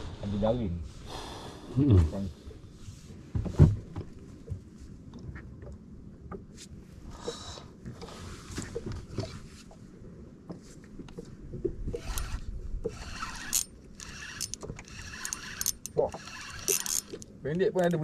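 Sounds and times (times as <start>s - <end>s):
fishing reel whirring: 11.9s - 17.3s.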